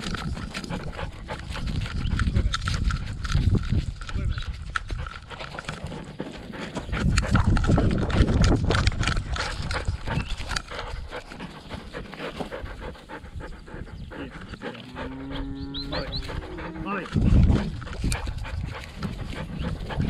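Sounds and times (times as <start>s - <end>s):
dog panting: 0.0s - 20.0s.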